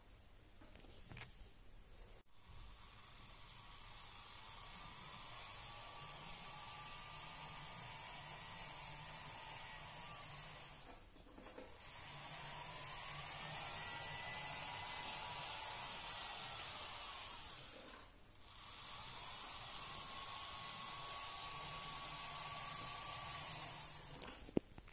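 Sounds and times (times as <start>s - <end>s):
model locomotive motors whirring: 2.4s - 24.4s.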